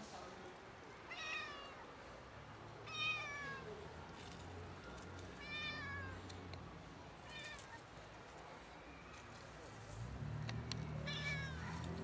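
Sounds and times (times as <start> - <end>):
cat meowing: 5.4 - 6.2, 11.0 - 11.7.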